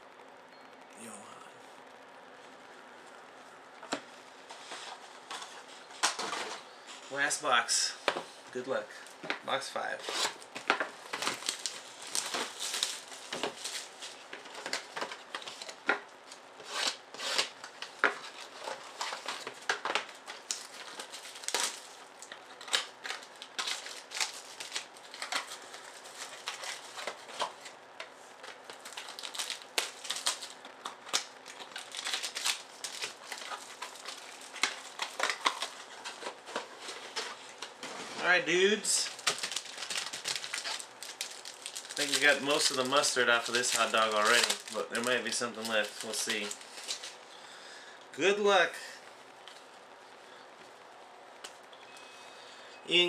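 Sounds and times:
plastic shrink wrap crinkling: 2.4 - 47.8.

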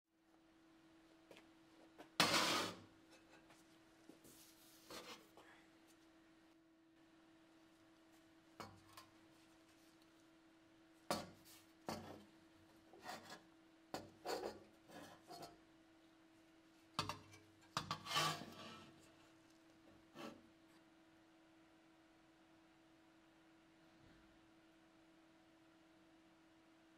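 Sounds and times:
rusty metal scraping on bench: 2.2 - 2.9, 17.8 - 19.1.

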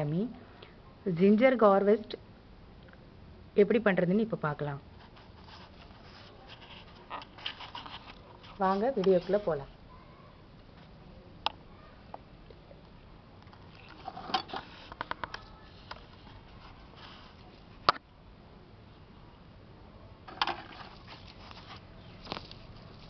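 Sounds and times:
crackles of dry roots: 20.7 - 23.0
hands digging in dry soil: 20.7 - 23.0.

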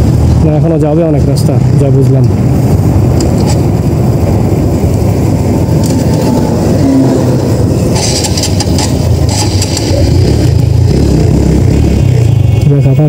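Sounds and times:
motorcycle engine: 0.0 - 13.0
wind rumble: 0.0 - 13.0
ticks and rattles: 7.9 - 10.0.

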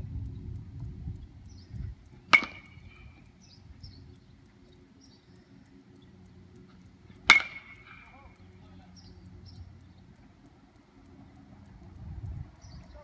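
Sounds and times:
metal bat hitting ball: 2.3 - 3.0, 7.2 - 8.1.

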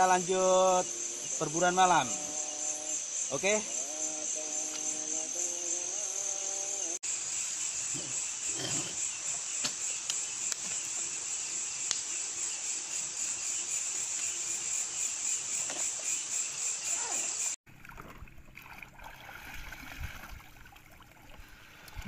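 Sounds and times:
crickets chirring: 0.0 - 17.6.

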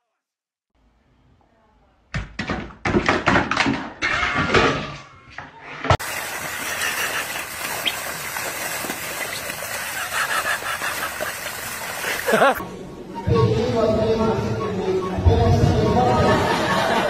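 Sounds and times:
water gushing and splashing: 6.0 - 12.6.

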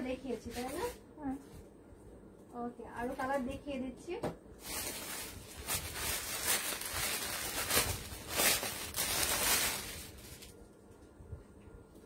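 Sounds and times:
fabric rustling and crinkling: 4.6 - 10.6.

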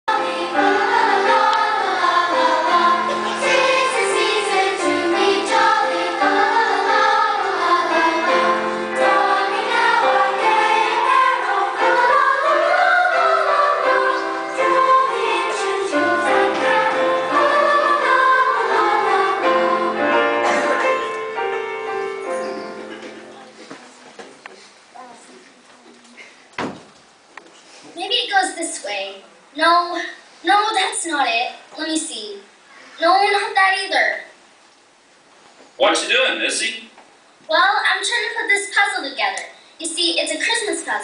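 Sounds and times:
choir singing with instruments: 0.1 - 23.4.

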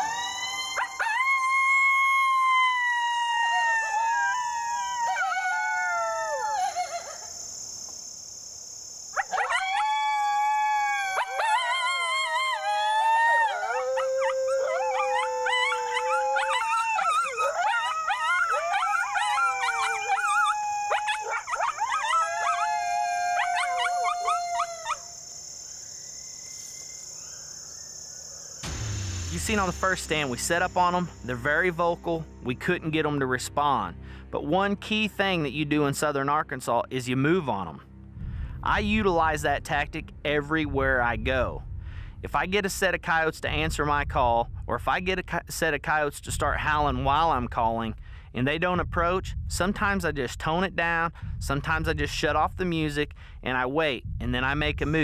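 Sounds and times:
coyote howler call: 0.0 - 7.1, 9.2 - 25.2
coyotes howling and yipping: 0.0 - 7.6, 9.1 - 25.6
insects droning: 0.0 - 34.3.

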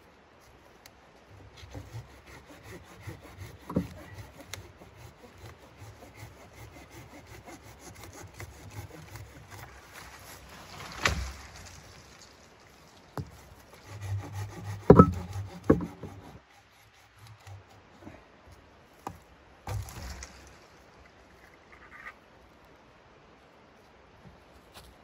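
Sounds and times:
saw rasping through wood: 1.4 - 10.5, 13.2 - 17.8
wood cracking: 8.7 - 16.2, 19.7 - 21.2
sharp knocks: 14.6 - 16.2.

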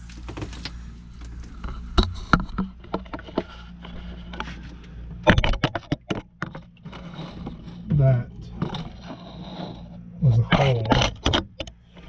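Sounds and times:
electric equipment humming: 0.0 - 12.0
sharp knocks and clatters: 5.2 - 9.1.

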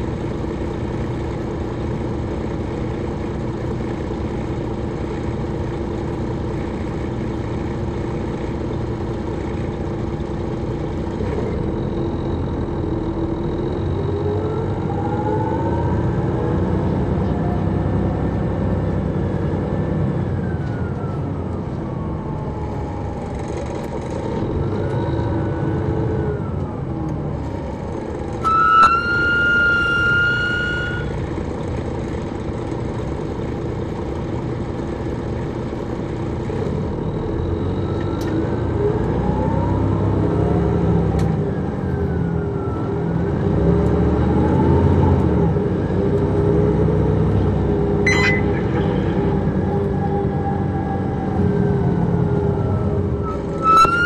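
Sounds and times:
bus engine driving: 0.0 - 54.0
short high tone: 28.4 - 31.2, 48.0 - 48.8.

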